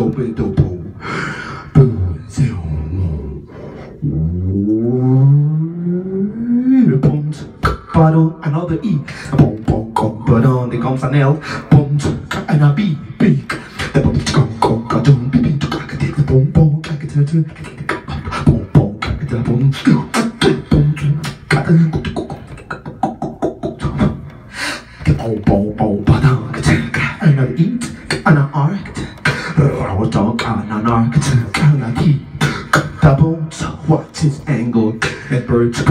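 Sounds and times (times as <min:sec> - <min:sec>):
man beatboxing into microphone: 0:00.0 - 0:35.9
sustained low tone: 0:04.0 - 0:06.9.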